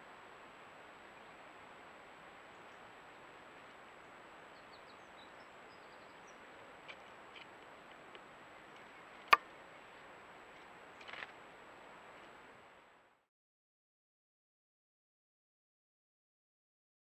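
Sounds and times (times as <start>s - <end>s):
microphone hiss: 0.0s - 13.3s
faint bird chirps: 4.0s - 6.7s.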